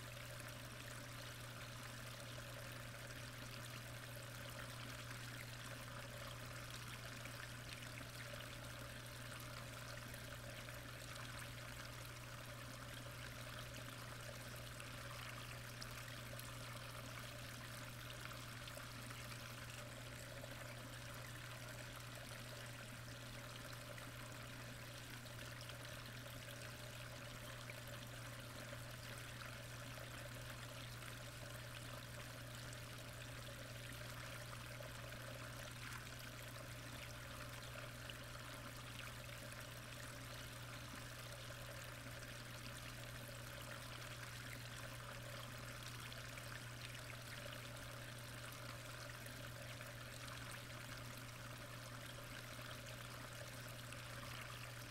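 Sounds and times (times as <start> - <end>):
low steady hum: 0.0 - 54.9.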